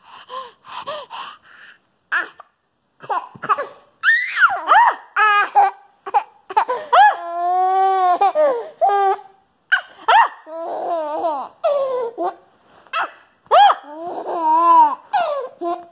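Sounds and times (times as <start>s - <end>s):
toddler laughing and squealing: 3.0s - 5.7s, 6.5s - 15.9s.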